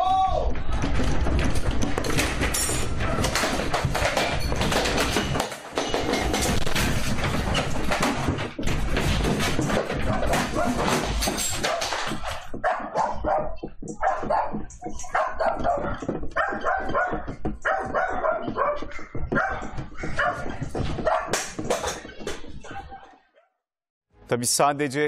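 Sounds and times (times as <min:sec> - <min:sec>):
objects clattering: 0:00.5 - 0:23.1
dog barking: 0:10.1 - 0:11.0, 0:12.6 - 0:21.4.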